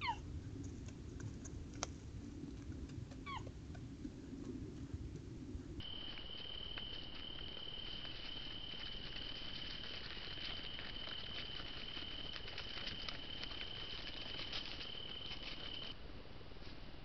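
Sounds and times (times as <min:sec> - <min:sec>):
soft ticks and rustles: 0:00.1 - 0:16.0
cricket trilling: 0:05.8 - 0:16.0.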